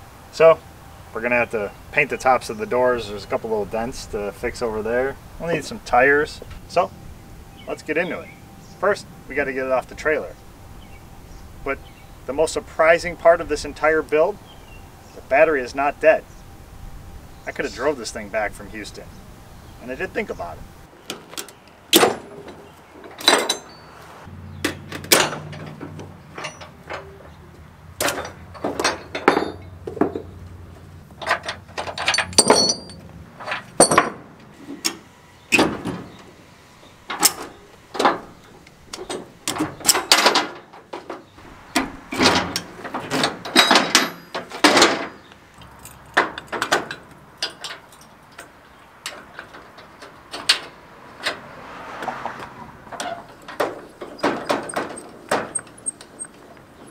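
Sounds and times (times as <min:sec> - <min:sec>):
low hum: 0:00.0 - 0:20.9
metal clanks of strap hooks: 0:21.1 - 0:23.8, 0:24.6 - 0:27.4, 0:28.0 - 0:30.3, 0:31.2 - 0:34.2, 0:37.1 - 0:51.4, 0:52.9 - 0:56.9.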